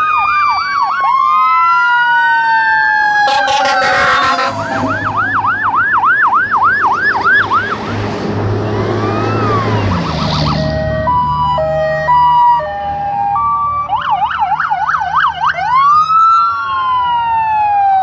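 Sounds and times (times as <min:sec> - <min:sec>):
fast yelp siren: 0:00.0 - 0:07.8, 0:09.0 - 0:18.0
wailing siren: 0:00.0 - 0:18.0
truck engine rumbling: 0:03.0 - 0:15.9
horn blast: 0:03.2 - 0:05.4.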